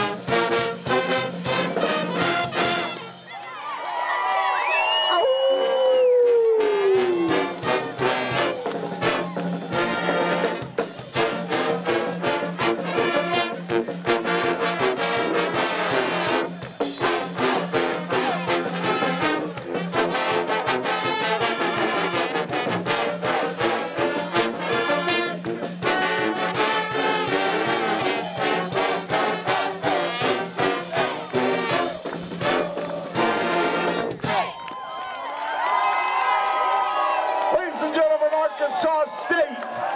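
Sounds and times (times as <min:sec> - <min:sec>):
pep band playing: 0:00.0 - 0:03.5, 0:06.6 - 0:34.5.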